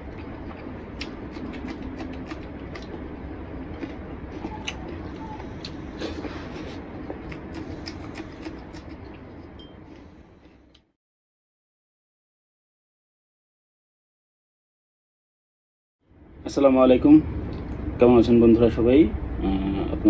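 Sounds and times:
chewing and mouth noises: 0:00.0 - 0:10.8
low background hum: 0:00.0 - 0:11.0, 0:16.0 - 0:20.0.

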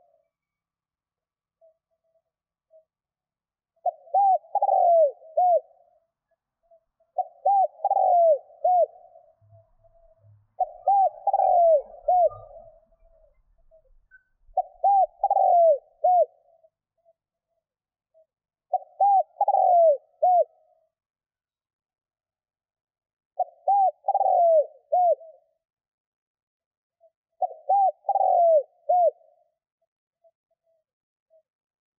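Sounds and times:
dove cooing: 0:03.8 - 0:06.0, 0:07.1 - 0:16.6, 0:18.7 - 0:20.6, 0:23.4 - 0:25.4, 0:27.4 - 0:29.4.

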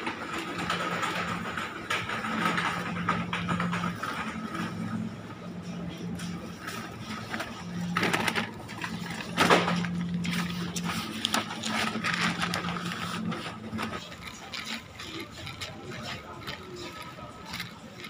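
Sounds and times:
paper bags rustling: 0:06.8 - 0:18.0.

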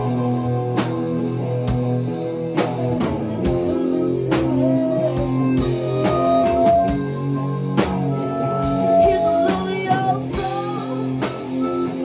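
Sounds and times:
drum kit beat: 0:00.0 - 0:12.0
guitar chords: 0:00.0 - 0:12.0.

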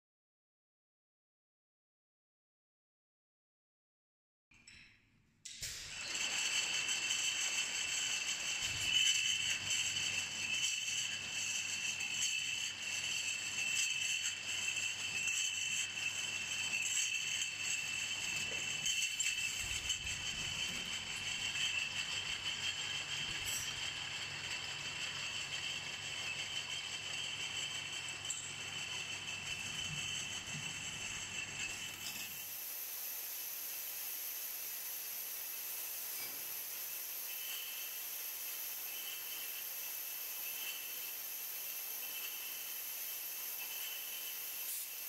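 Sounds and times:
high-pitched machine whine: 0:05.9 - 0:45.0
glass bottles clinking and rattling: 0:06.0 - 0:32.4.

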